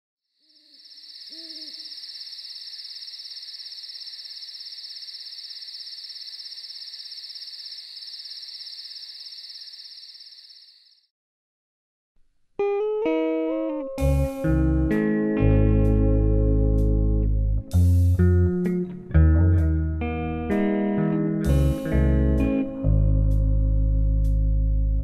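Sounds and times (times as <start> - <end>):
insect trill: 0.3 - 11.1
low hoots: 0.6 - 5.1.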